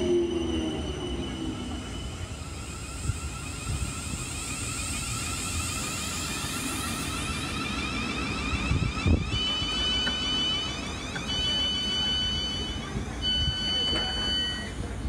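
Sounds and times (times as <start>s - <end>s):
high electronic whine: 0.0s - 14.7s
train wheels rumbling on rails: 0.0s - 15.0s.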